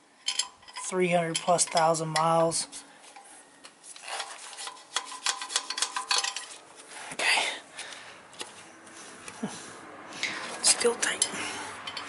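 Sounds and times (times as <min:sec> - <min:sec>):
metal clinks and taps: 0:00.2 - 0:02.4, 0:04.6 - 0:06.6, 0:11.1 - 0:12.0
metal scrape: 0:02.6 - 0:07.1.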